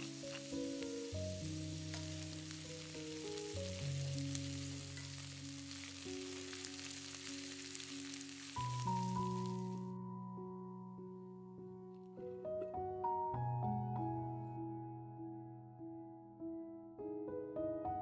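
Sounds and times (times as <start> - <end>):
vegetables sizzling in a skillet: 0.0 - 9.9
soft background music: 0.0 - 18.0.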